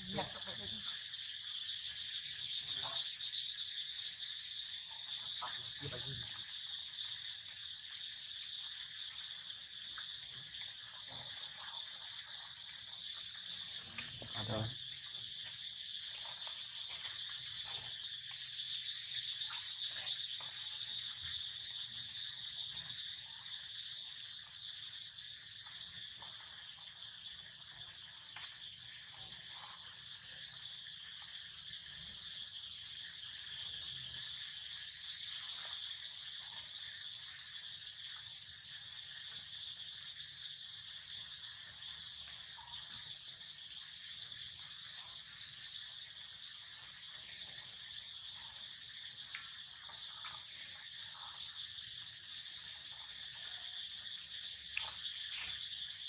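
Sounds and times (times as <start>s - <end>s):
insects chorus: 0.0s - 56.0s.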